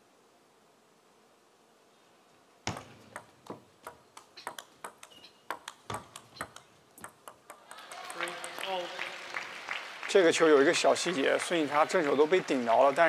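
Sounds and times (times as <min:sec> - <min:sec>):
table tennis ball clicking: 0:02.7 - 0:08.9.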